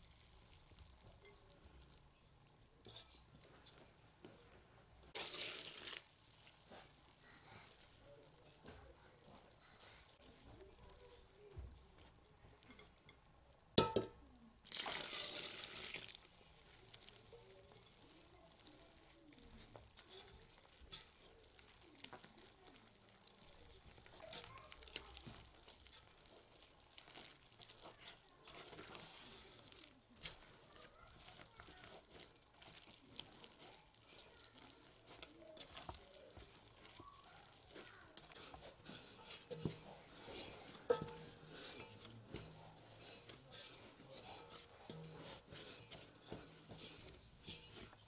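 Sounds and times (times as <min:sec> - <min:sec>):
hands kneading dough: 0:00.0 - 0:48.0
knocks against bowl: 0:13.8 - 0:14.2.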